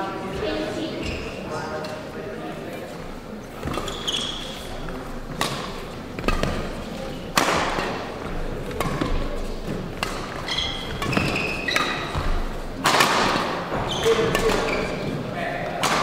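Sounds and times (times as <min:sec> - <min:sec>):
shoes squeaking on floor: 0:00.8 - 0:01.9, 0:03.5 - 0:07.1, 0:08.2 - 0:12.7, 0:13.4 - 0:15.2
rackets hitting shuttlecock: 0:03.6 - 0:16.0.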